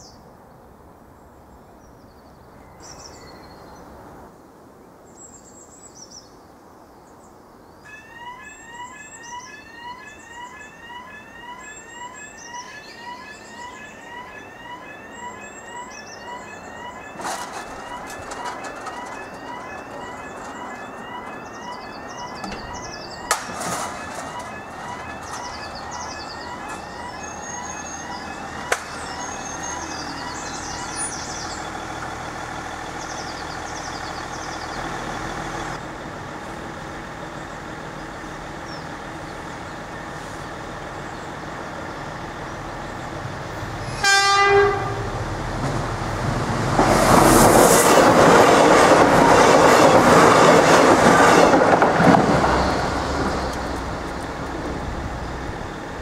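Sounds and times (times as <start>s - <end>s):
level crossing warning alarm: 7.9s - 32.9s.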